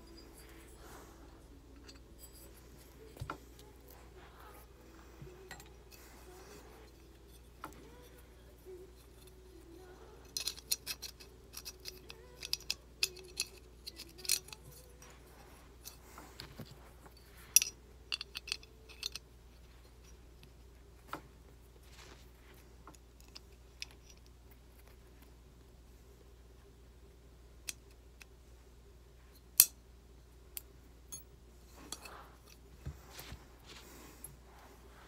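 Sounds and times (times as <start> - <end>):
small steel parts clicking: 6.9 - 15.2, 17.2 - 19.3, 29.5 - 29.8.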